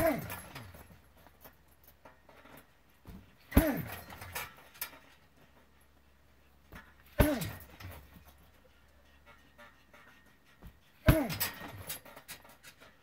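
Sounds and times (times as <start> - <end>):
short grunt: 0.0 - 0.8, 3.4 - 4.3, 7.0 - 8.1, 11.0 - 12.0
kicks thudding on punching bag: 3.0 - 4.3, 6.7 - 8.0, 10.6 - 11.8
step thump: 3.0 - 4.3.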